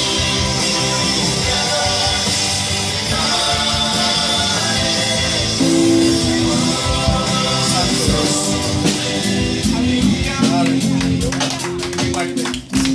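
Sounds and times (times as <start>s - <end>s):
person singing: 0.0s - 11.4s
instruments playing held notes: 3.0s - 12.1s.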